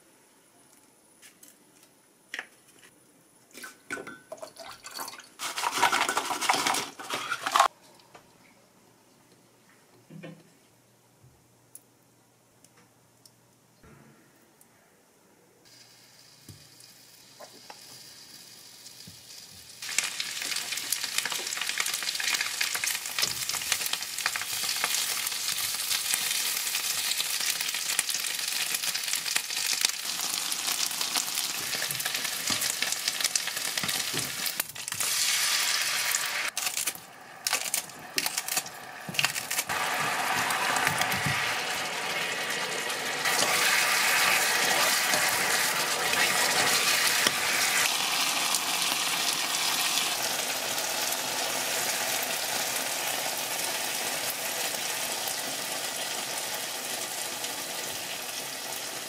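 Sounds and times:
chicken wings sizzling in oil: 15.7 - 59.0.

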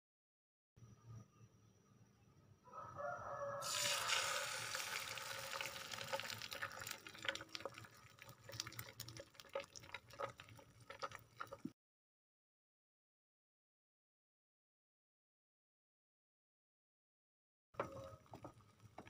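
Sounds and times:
egg sizzling in hot oil: 3.6 - 11.7.

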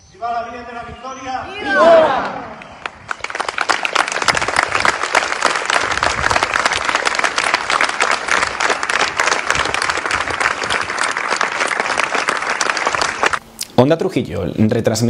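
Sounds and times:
crowd applauding: 2.2 - 13.4.

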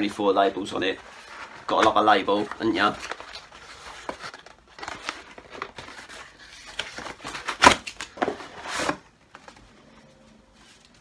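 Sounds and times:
cardboard rustling and scraping: 0.6 - 9.7
cardboard tearing: 1.2 - 9.0.

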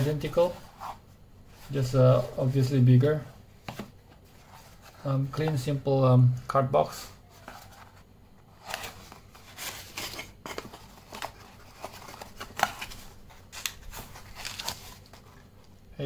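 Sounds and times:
paper leaflet rustling: 7.3 - 15.6
cardboard box being unpacked: 8.6 - 15.4.

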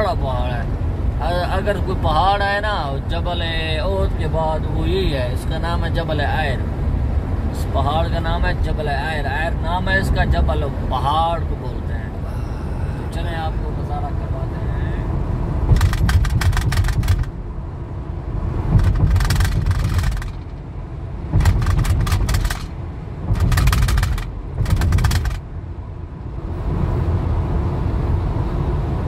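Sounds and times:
car road and engine rumble: 0.0 - 29.0
fast crackling bursts: 15.7 - 17.3, 18.8 - 20.6, 21.4 - 22.7, 23.3 - 25.4.

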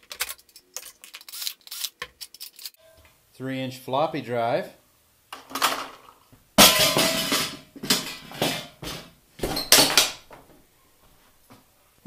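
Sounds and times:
metal parts clanking on workbench: 5.4 - 10.2.

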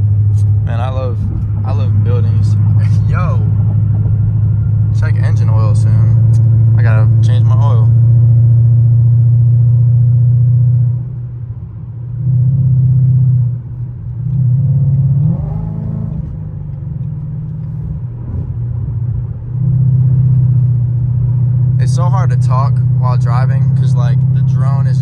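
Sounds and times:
car exhaust drone: 0.0 - 25.0.

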